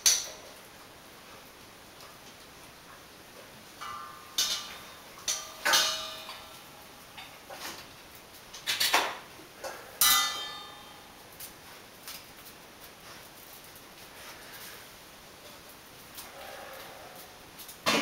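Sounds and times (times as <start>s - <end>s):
metal bowl clanking on tile floor: 3.8s - 6.6s.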